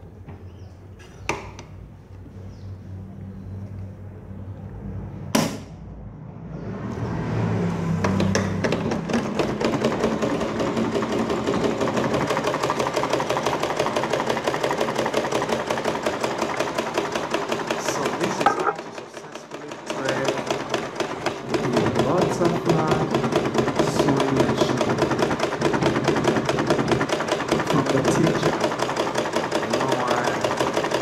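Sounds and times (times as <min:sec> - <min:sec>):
sewing machine clatter: 0:08.2 - 0:31.0.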